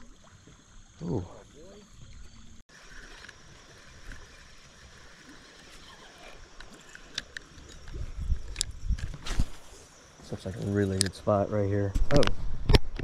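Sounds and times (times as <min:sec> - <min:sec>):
fishing reel light clicks: 0:06.5 - 0:09.1, 0:10.6 - 0:11.4.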